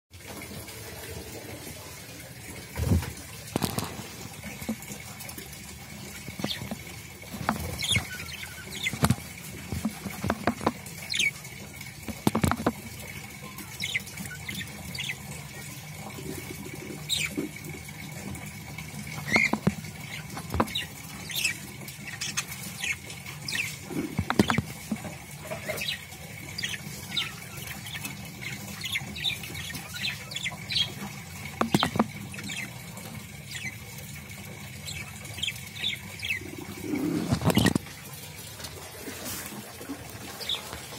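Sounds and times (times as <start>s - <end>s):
scratchy ticks and taps on wood: 8.9s - 10.9s, 12.1s - 12.9s, 19.3s - 19.8s, 20.4s - 20.8s, 24.1s - 25.1s, 31.6s - 32.1s
budgerigar soft chirps: 31.6s - 32.6s.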